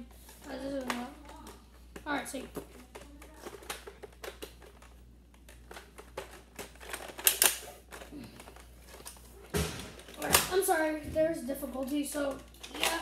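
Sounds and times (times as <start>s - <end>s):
loud plastic clacks: 0.7s - 10.8s
plastic toy blaster clicks: 6.6s - 7.6s.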